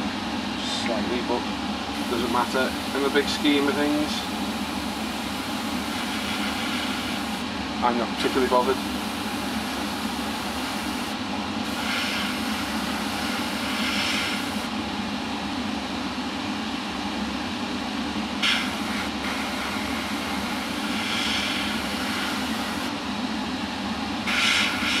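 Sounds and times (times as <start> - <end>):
low mechanical hum: 0.0 - 25.0
airbrush hissing: 2.0 - 7.4, 11.7 - 14.7, 18.4 - 22.9, 24.3 - 25.0.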